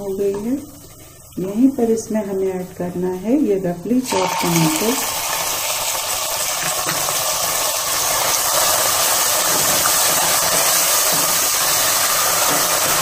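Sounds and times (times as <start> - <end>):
tomatoes sizzling in hot oil: 4.0 - 13.0.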